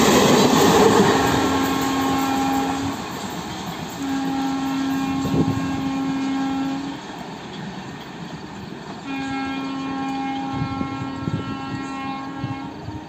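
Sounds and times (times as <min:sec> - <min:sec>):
train rumbling on rails: 0:00.0 - 0:13.0
locomotive horn blasts: 0:01.5 - 0:03.1, 0:04.0 - 0:07.0, 0:09.0 - 0:13.0.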